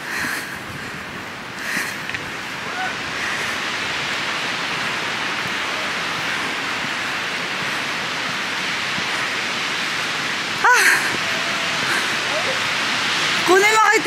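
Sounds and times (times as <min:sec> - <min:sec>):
steady rushing noise: 0:00.0 - 0:14.0
person crying out: 0:02.6 - 0:03.0, 0:10.6 - 0:12.7.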